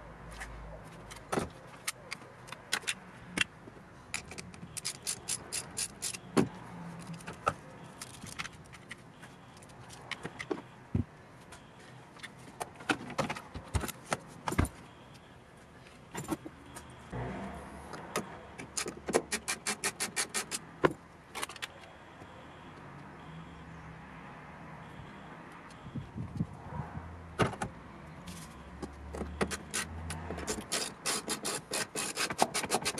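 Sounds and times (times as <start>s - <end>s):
ratchet wrench clicking: 4.2s - 6.3s.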